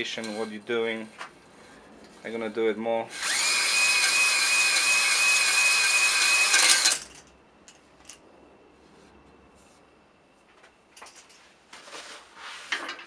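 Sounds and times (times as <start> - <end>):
drill whining: 3.1 - 7.1.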